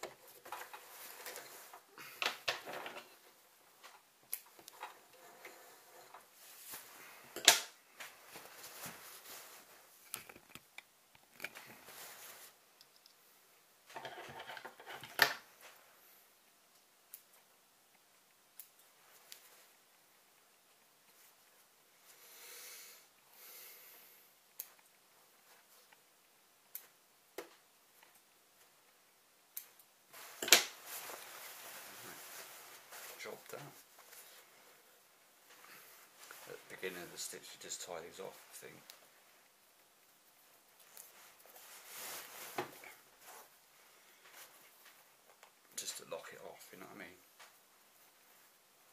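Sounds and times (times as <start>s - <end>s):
rustling: 0.0s - 22.5s, 23.4s - 48.9s
fabric rustling: 0.2s - 2.2s, 4.9s - 10.1s, 11.6s - 12.7s, 30.1s - 37.4s, 40.3s - 45.4s.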